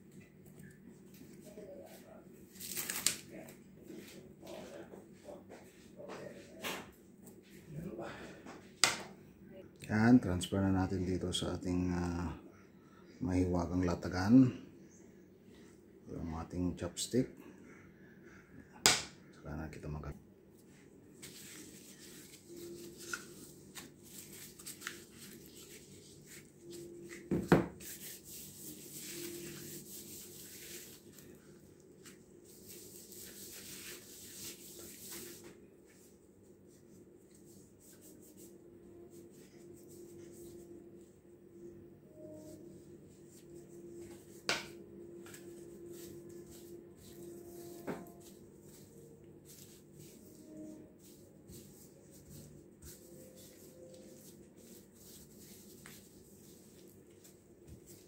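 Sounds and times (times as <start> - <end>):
steady background hum: 0.0 - 58.0
plastic gloves and wrap rustling: 0.3 - 4.7, 20.8 - 58.0.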